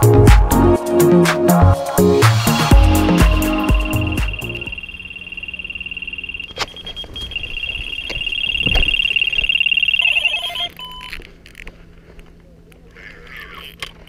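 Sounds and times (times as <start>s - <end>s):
lower beeping: 2.6s - 11.2s
high-pitched bite alarm tone: 2.8s - 11.1s.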